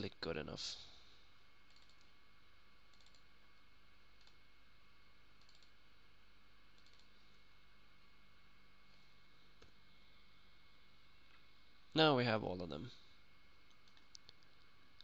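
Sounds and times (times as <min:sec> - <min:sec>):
faint steady hum: 0:00.0 - 0:15.0
computer mouse clicks: 0:01.7 - 0:02.1, 0:02.9 - 0:03.3, 0:04.2 - 0:04.4, 0:05.4 - 0:05.8, 0:06.7 - 0:07.2, 0:13.7 - 0:14.7.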